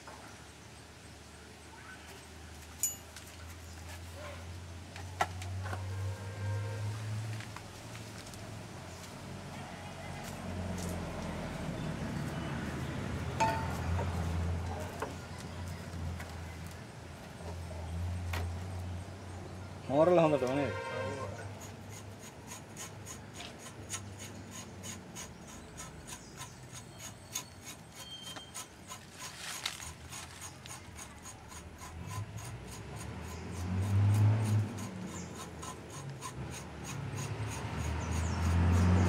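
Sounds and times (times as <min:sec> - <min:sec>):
blade scraping bark: 0:20.0 - 0:39.0.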